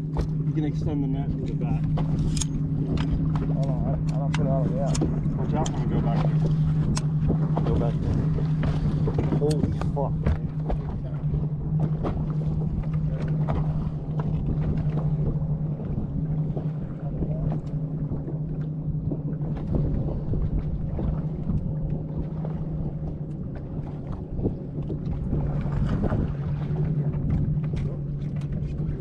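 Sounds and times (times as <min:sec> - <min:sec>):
boat motor humming: 0:00.0 - 0:29.0
water slapping the hull: 0:00.0 - 0:29.0.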